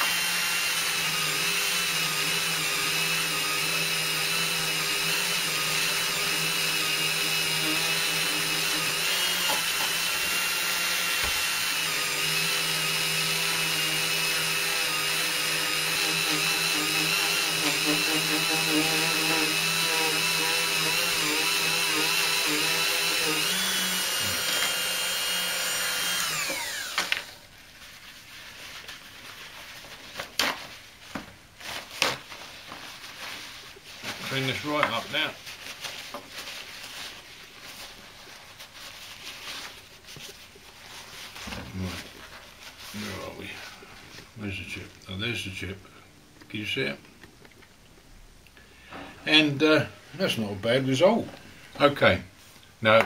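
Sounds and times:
rotary drill motor whining: 0.0 - 27.4.

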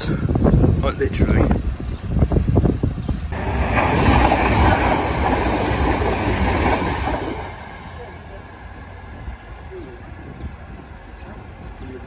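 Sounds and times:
train passing at speed: 3.3 - 12.0.

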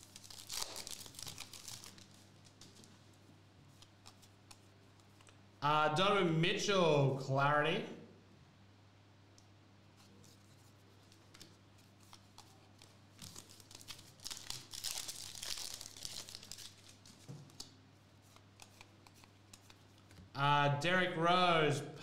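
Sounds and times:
foil wrapper crinkling and tearing: 0.0 - 2.8, 11.3 - 17.8.

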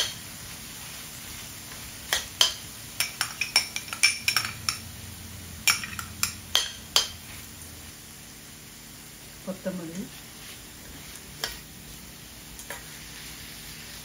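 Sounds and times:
metal spoon clinking on cookware: 2.1 - 4.9, 5.6 - 7.2.

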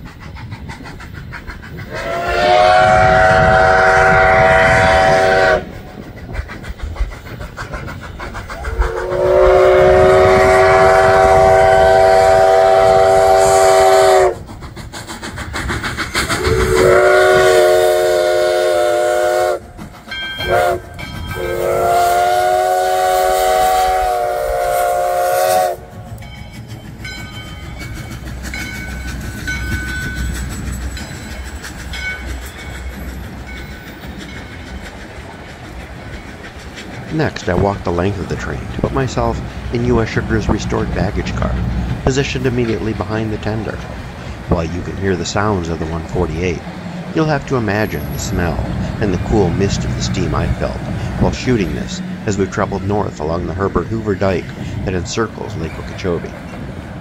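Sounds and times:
locomotive rumble: 0.0 - 57.0
train cars rolling on rails: 0.0 - 57.0
steam whistle blasts: 1.9 - 5.8, 8.6 - 14.4, 16.4 - 19.7, 20.4 - 26.0.

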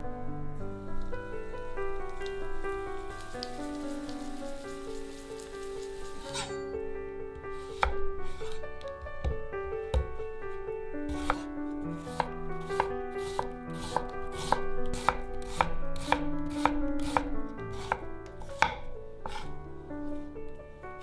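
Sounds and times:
knife slicing onion on wooden board: 7.6 - 8.6, 11.1 - 19.5.

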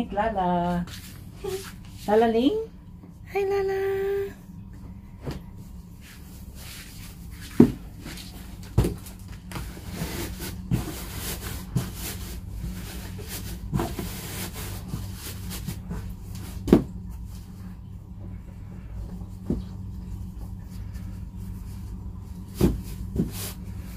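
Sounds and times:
rustling of cloth and cardboard: 20.6 - 23.9.

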